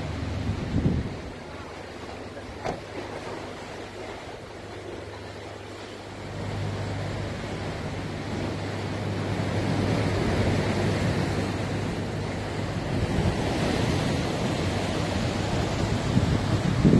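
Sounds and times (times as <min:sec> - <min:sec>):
wind blowing across microphone: 0:00.0 - 0:01.6, 0:09.5 - 0:16.9
sea waves: 0:00.0 - 0:16.9.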